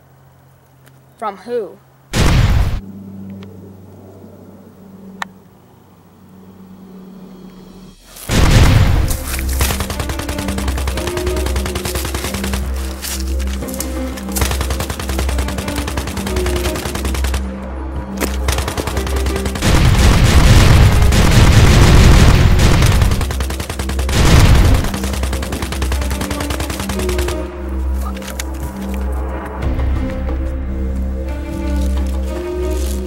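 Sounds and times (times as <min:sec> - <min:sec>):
rapid gunfire bursts: 0:08.3 - 0:13.0, 0:14.2 - 0:17.6, 0:18.2 - 0:27.5
background music with low beat: 0:08.4 - 0:33.0.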